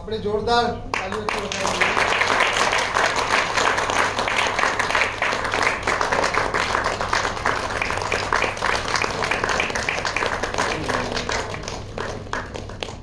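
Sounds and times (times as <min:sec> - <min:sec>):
crowd applauding: 0:00.9 - 0:13.0.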